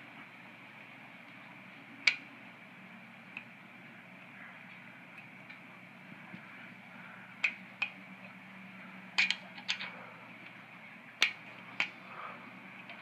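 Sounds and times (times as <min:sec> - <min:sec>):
small metal clicks and taps: 0:09.2 - 0:10.6.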